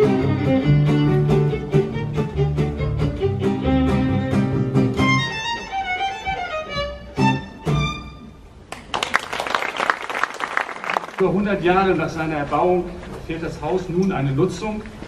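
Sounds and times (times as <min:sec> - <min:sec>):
violin playing: 0:00.0 - 0:08.5
string accompaniment: 0:00.0 - 0:08.7
audience applause: 0:08.7 - 0:11.4.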